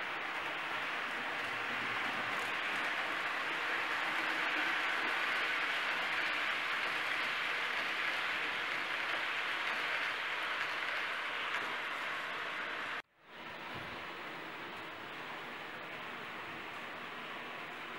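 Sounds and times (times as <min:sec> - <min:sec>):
model train wheels rattling on track: 0:00.0 - 0:13.0.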